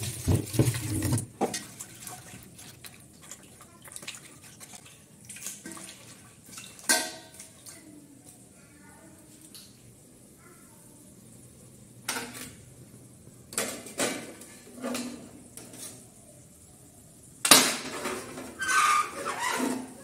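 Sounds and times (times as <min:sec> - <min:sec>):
metal pots clanking: 0:00.0 - 0:02.0, 0:05.6 - 0:07.5.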